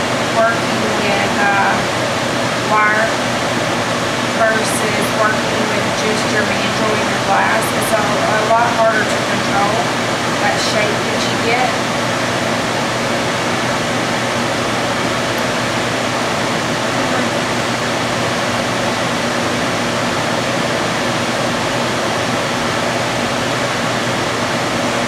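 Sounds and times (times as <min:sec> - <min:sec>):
low steady hum: 0:00.0 - 0:25.0.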